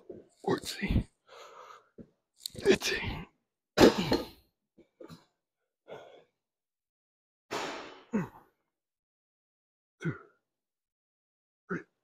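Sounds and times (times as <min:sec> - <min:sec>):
man grunting: 0:10.0 - 0:10.4, 0:11.7 - 0:12.0.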